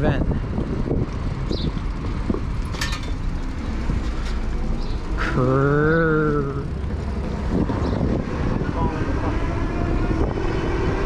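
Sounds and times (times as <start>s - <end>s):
wind on microphone: 0.0s - 2.6s, 7.2s - 11.0s
road rumble: 0.0s - 11.0s.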